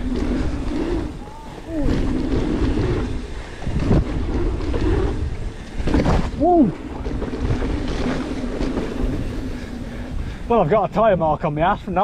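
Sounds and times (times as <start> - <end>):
wind buffeting camera: 0.0 - 12.0
bike knocking over ground: 5.8 - 9.2.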